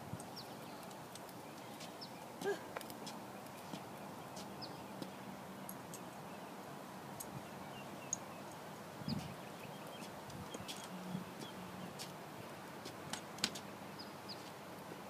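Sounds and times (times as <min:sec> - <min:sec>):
walker clicking on concrete sidewalk: 0:09.2 - 0:12.2, 0:12.8 - 0:13.7.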